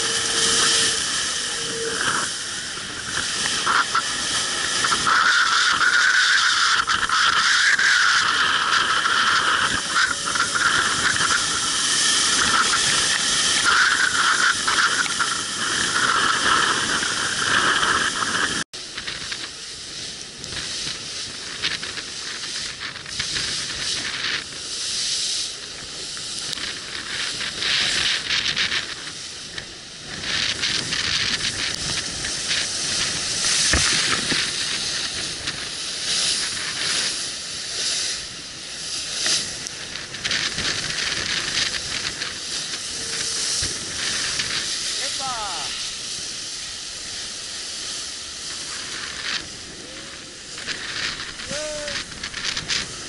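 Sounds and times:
water rushing and spray hissing: 0.0s - 53.0s.

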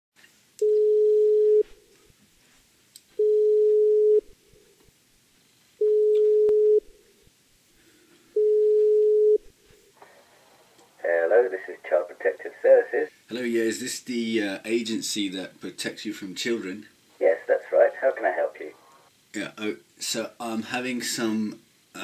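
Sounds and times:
telephone ringback tone: 0.6s - 1.7s, 3.2s - 4.2s, 5.8s - 6.9s, 8.4s - 9.4s.

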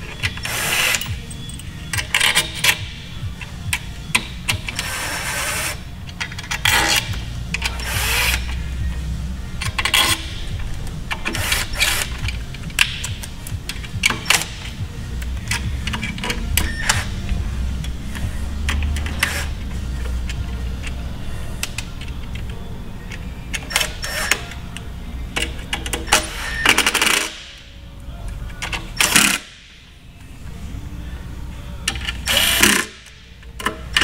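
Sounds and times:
hand tools clicking and clinking: 0.1s - 2.8s.

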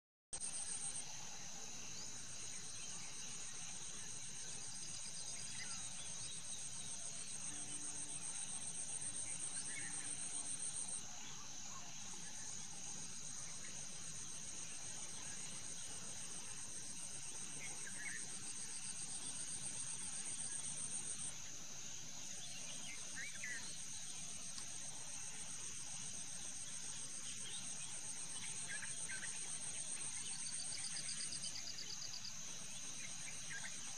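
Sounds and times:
insects chirping: 0.4s - 33.9s.

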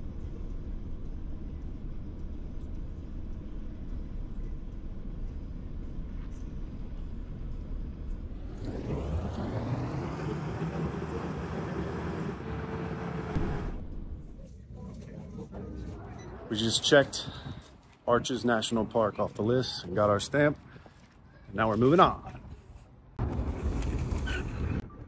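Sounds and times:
car road and engine noise: 6.9s - 14.3s, 22.9s - 25.0s
loud rushing sound: 8.3s - 14.3s.

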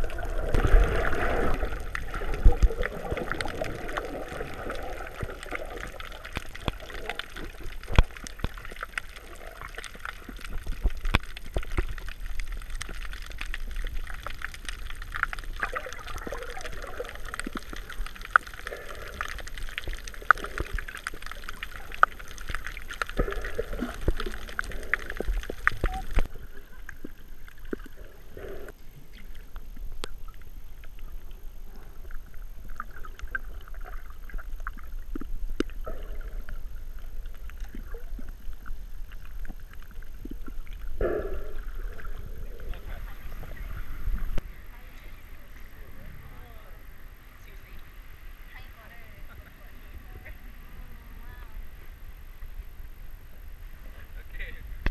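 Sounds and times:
water sloshing underwater: 0.0s - 54.9s
sharp clicks and crackles: 0.4s - 28.2s.

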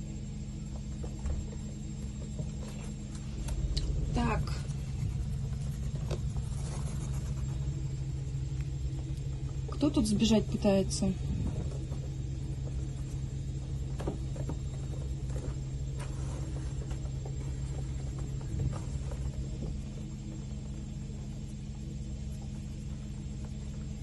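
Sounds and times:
steady low hum: 0.0s - 24.0s
claws scratching on plastic: 4.4s - 8.2s.

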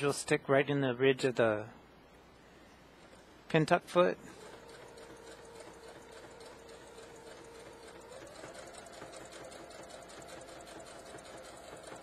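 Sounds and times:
sewing machine stitching: 4.2s - 12.0s.

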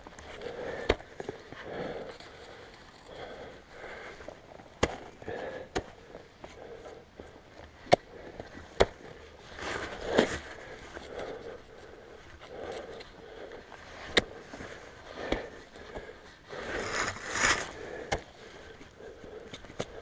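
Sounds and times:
ice axe scraping: 16.5s - 18.2s
snow and grass crunching: 16.6s - 18.0s.

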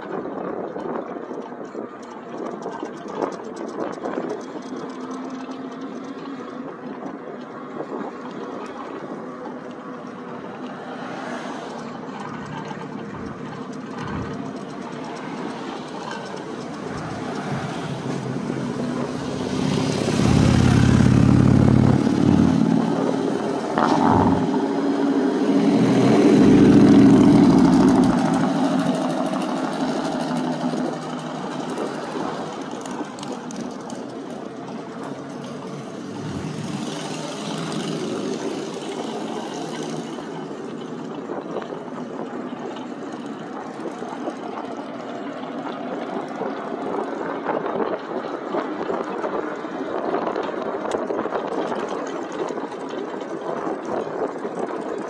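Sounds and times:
passing traffic: 0.0s - 55.0s
wind and road noise: 0.0s - 55.0s.

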